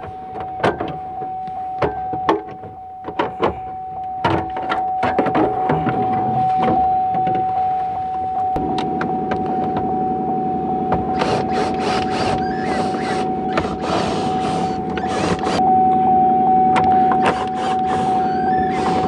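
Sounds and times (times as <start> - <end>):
machine hum with high whine: 0.0 - 19.0.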